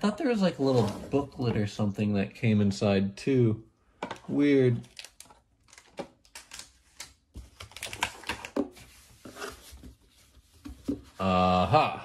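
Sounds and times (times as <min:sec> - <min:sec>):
scraping against cardboard: 0:08.7 - 0:11.2.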